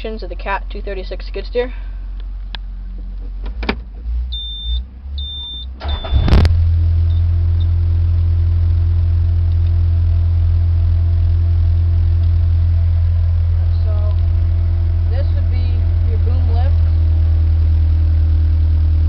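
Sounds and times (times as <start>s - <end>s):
diesel engine starting and idling: 0.0s - 19.0s
short high warning beeps: 4.4s - 6.3s.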